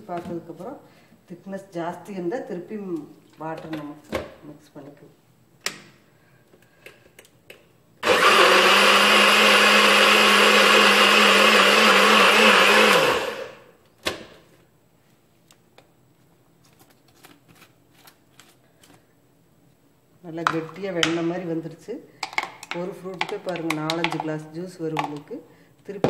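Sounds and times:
blender motor running: 0:08.0 - 0:13.7.

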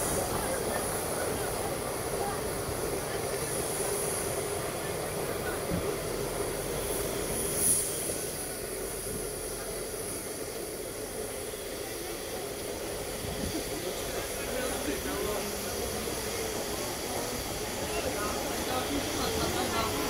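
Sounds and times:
train rumbling on track: 0:00.0 - 0:20.0.

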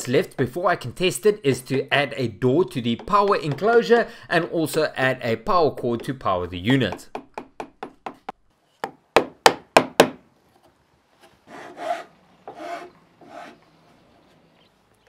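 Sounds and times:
tool striking chisel: 0:02.8 - 0:03.9
file rasping along wood: 0:11.4 - 0:13.6.

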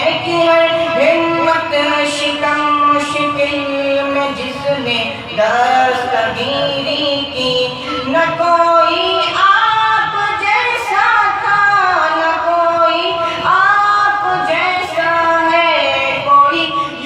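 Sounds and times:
man singing devotional chant: 0:03.9 - 0:08.9.

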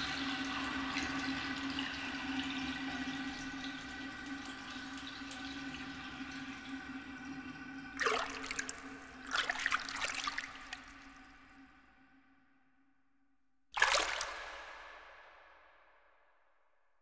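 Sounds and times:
bathwater washing: 0:07.9 - 0:11.4, 0:13.8 - 0:14.8
water splashing: 0:08.0 - 0:11.6, 0:13.8 - 0:15.4.

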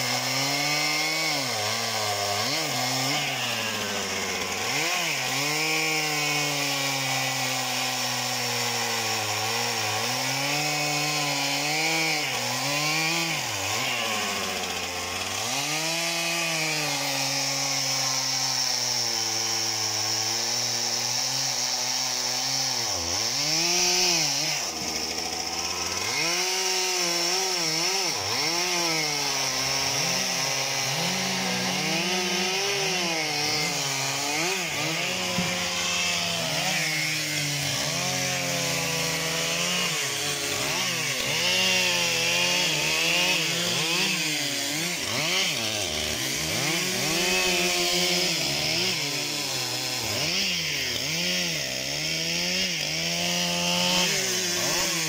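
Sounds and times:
chainsaw cutting logs: 0:00.0 - 0:55.0.

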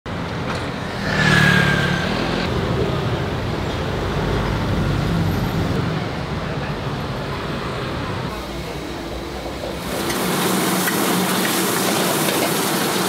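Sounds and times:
vehicle engines running: 0:00.1 - 0:10.2
vehicle passing close by: 0:00.6 - 0:06.0.

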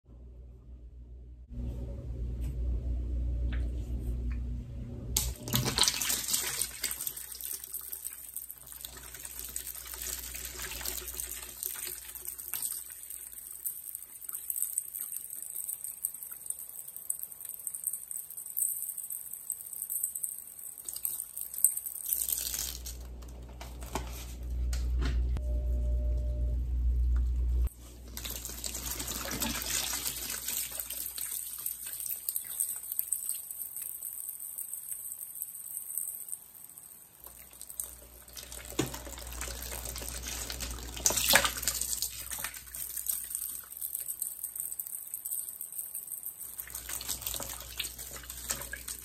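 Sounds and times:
tap running into bucket: 0:38.4 - 0:42.7.

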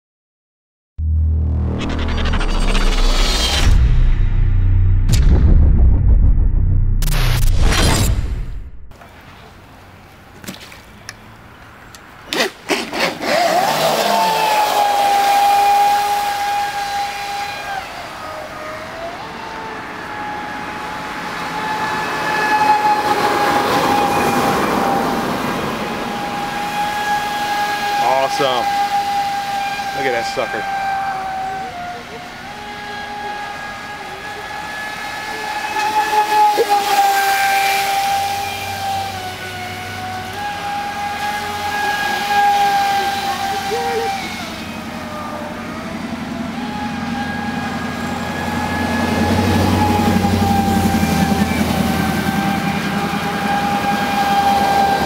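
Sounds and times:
electric motor whine: 0:13.1 - 0:55.0.

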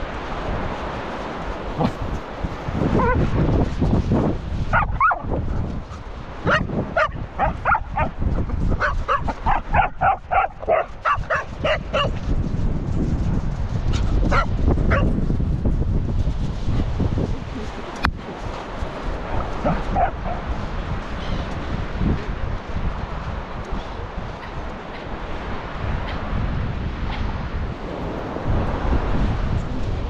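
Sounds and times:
wind rumble on microphone: 0:00.0 - 0:30.0
dog gliding call: 0:00.4 - 0:03.3, 0:04.7 - 0:12.3, 0:17.4 - 0:21.5
dog barking: 0:04.7 - 0:05.3, 0:06.5 - 0:08.2, 0:08.8 - 0:12.2, 0:14.3 - 0:15.1, 0:19.6 - 0:20.4.

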